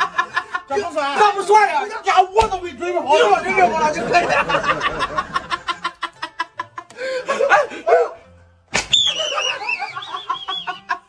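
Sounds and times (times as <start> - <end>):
men laughing: 0.0 - 1.4, 3.1 - 8.2, 9.1 - 11.0
music: 0.0 - 11.0.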